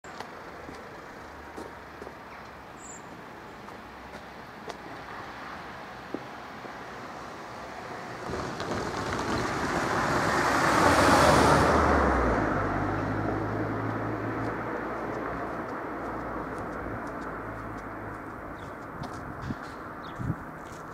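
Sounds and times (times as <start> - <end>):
car driving past: 7.1 - 18.0.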